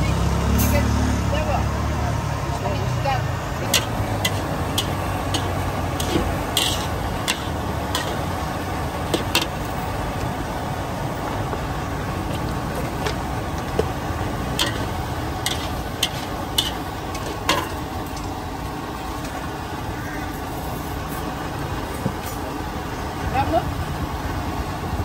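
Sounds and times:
steady background noise: 0:00.0 - 0:25.0
utensils and dishes clinking: 0:03.7 - 0:08.4, 0:09.0 - 0:09.8, 0:12.2 - 0:18.4.

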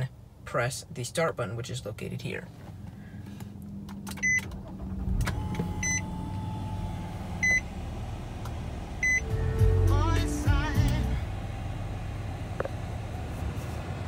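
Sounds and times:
car engine cranking and starting: 0:02.6 - 0:14.0
car warning chime beeping: 0:04.2 - 0:04.5, 0:05.3 - 0:07.8, 0:08.9 - 0:11.1.

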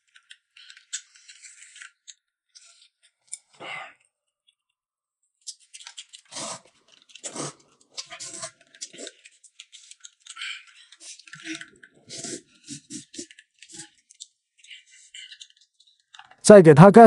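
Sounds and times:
noodles slurped and chewed: 0:05.5 - 0:15.9.

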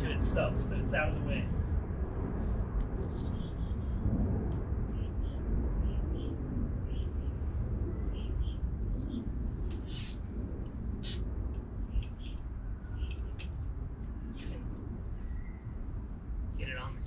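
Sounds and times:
steady low rumble: 0:00.0 - 0:17.0
small birds chirping: 0:04.8 - 0:10.2, 0:11.0 - 0:17.0
short rasps: 0:09.7 - 0:10.2, 0:11.0 - 0:11.2.

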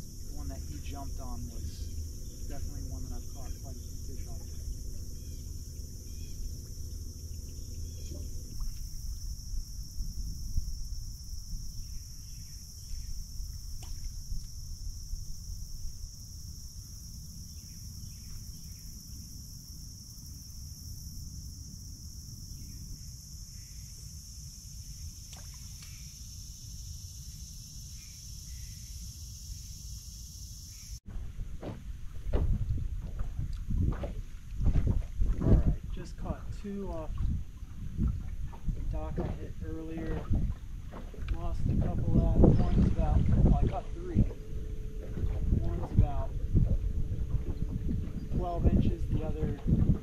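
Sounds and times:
wind rumble on microphone: 0:00.0 - 0:23.8, 0:31.1 - 0:50.0
low steady hum: 0:00.0 - 0:26.1, 0:30.7 - 0:50.0
insects chorus: 0:00.0 - 0:50.0.

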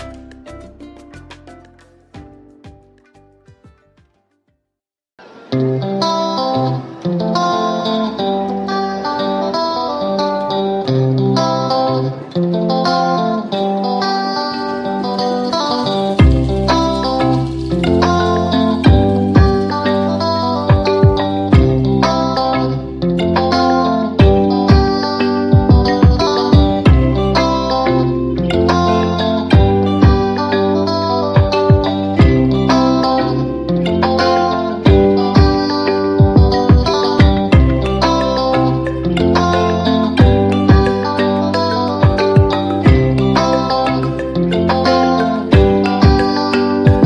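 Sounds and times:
plucked guitar melody: 0:00.0 - 0:04.4, 0:05.2 - 0:47.0.

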